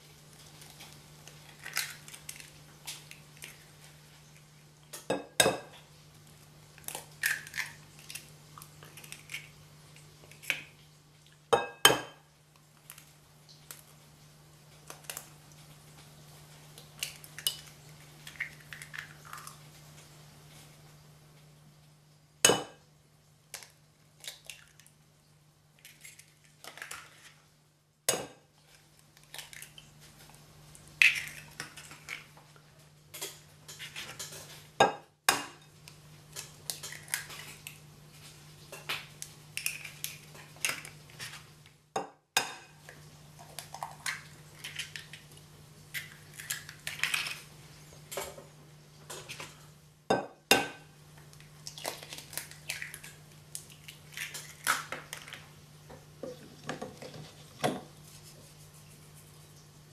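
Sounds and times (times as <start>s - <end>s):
eggshell crackling: 0.3s - 5.0s, 6.0s - 11.5s, 12.5s - 20.6s, 28.6s - 32.5s, 42.8s - 47.8s, 51.2s - 55.6s.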